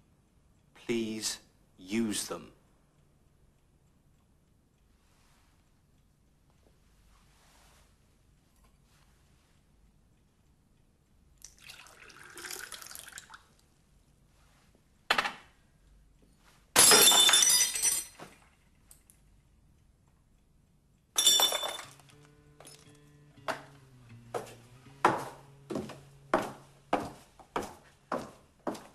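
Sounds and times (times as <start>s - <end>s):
glass shattering on floor: 16.8s - 18.5s, 21.2s - 22.9s.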